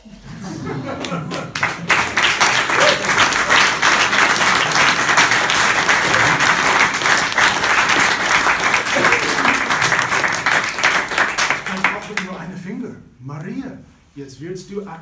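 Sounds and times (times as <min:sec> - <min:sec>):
small group applauding: 0:00.6 - 0:12.4.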